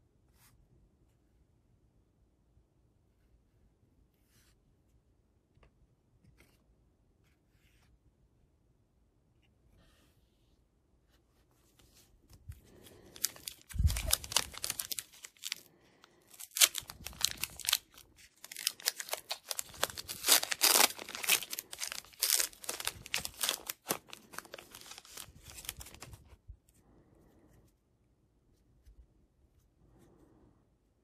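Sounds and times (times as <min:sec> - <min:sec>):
wrapper crinkling and tearing: 0:13.1 - 0:15.7, 0:16.3 - 0:26.2.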